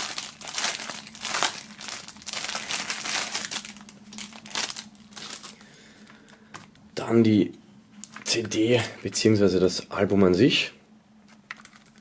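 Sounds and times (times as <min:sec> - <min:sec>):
plastic film crinkling: 0:00.0 - 0:05.7, 0:11.4 - 0:12.0.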